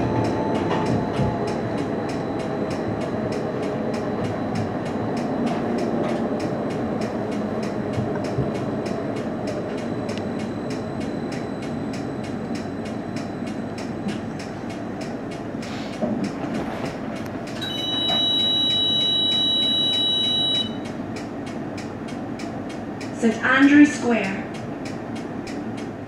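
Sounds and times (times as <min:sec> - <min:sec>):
tram rumbling: 0:00.0 - 0:26.0
two-note electronic tone: 0:17.6 - 0:20.8.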